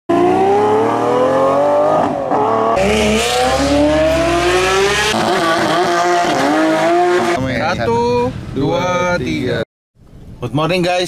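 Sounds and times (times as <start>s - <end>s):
sports car engine revving: 0.1s - 7.4s.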